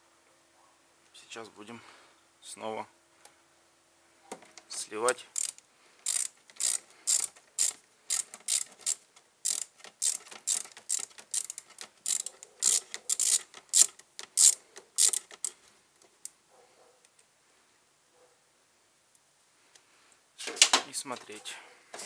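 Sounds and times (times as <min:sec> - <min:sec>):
hand ratchet clicking: 0:05.3 - 0:15.6.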